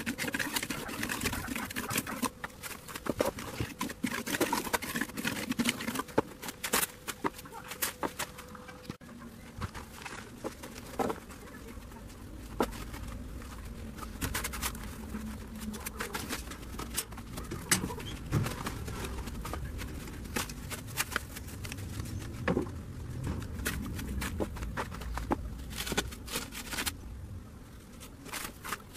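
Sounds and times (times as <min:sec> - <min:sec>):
trowel scraping wet concrete: 0:00.0 - 0:07.8
steady low rumble: 0:09.0 - 0:28.3.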